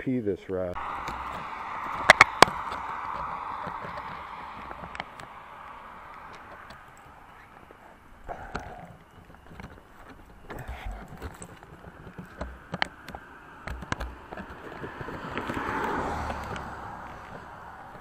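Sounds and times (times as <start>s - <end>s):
rushing noise: 0.8s - 7.7s
handling clicks and knocks: 1.0s - 18.0s.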